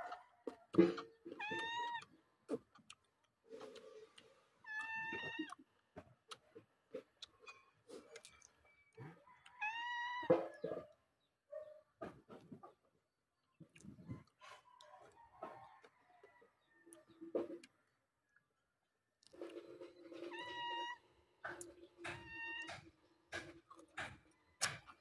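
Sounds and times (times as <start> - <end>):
clicks and smacks of eating: 0.4 - 9.6, 13.6 - 15.9, 21.4 - 25.0
cat meowing: 1.4 - 2.1, 4.7 - 5.6, 9.6 - 10.4, 20.3 - 21.0, 22.1 - 22.8.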